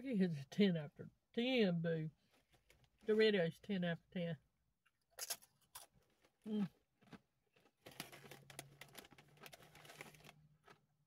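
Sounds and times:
chip crunching: 5.2 - 10.9
chip bag crinkling: 7.0 - 10.9.

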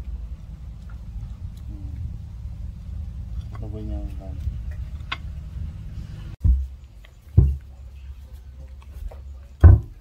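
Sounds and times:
low steady hum: 0.0 - 10.0
dull thumps: 6.4 - 7.8, 9.6 - 10.0.

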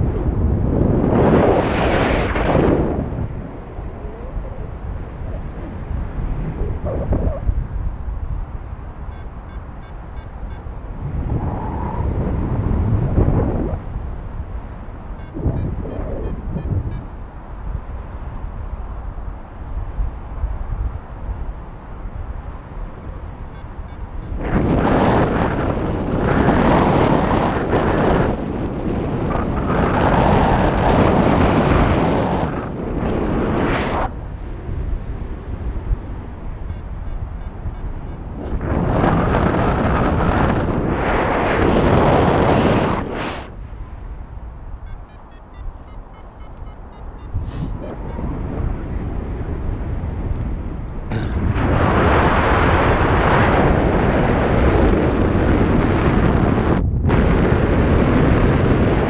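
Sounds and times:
wind buffeting microphone: 0.0 - 59.0
low rumble: 10.8 - 17.3
faint high beeps: 15.2 - 17.1, 44.8 - 48.2.

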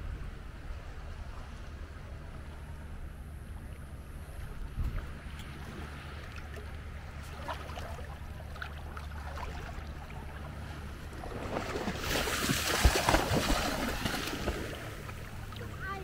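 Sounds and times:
wind rumble on microphone: 0.0 - 7.4
seawater sloshing and splashing: 4.4 - 16.0.

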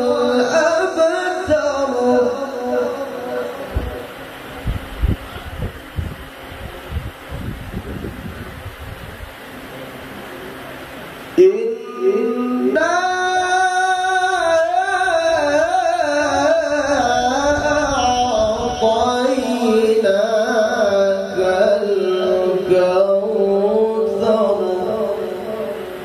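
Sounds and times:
man reciting melodically into microphone: 0.0 - 4.3, 11.4 - 26.0
low hall murmur: 0.0 - 26.0.

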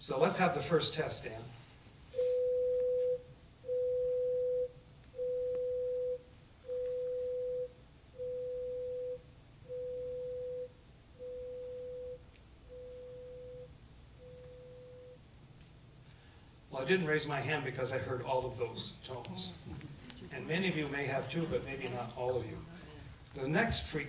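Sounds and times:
pure tone beeps: 2.1 - 15.2.

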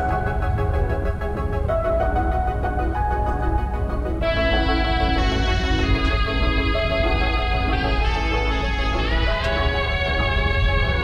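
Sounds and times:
deep bass: 0.0 - 11.0
held chords: 0.0 - 11.0.

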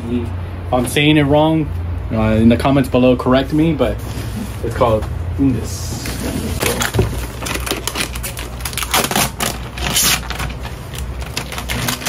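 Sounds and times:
cardboard box rustling: 6.0 - 12.0
plastic bag crinkling: 6.6 - 12.0.

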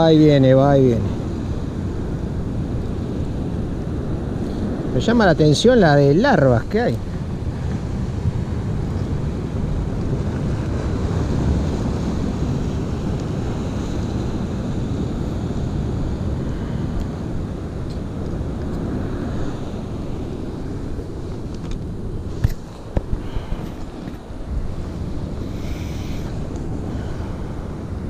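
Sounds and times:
wind buffeting microphone: 0.0 - 28.0
waves against a sea wall: 0.7 - 28.0.

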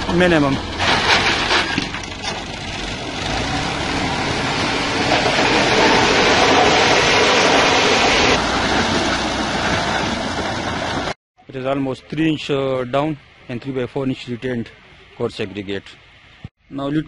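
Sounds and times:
tractor diesel engine under load: 0.0 - 11.2.

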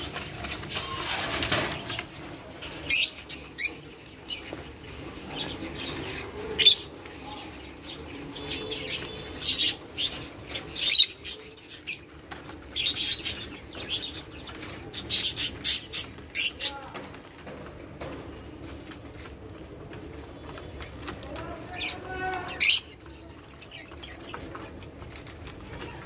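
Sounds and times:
doves beating wings: 0.0 - 26.0.

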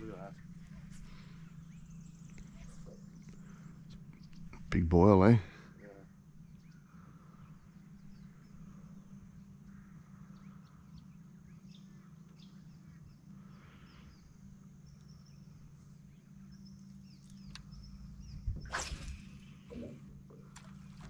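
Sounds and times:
steady low hum: 0.0 - 21.0
bird chirps: 6.4 - 20.1.

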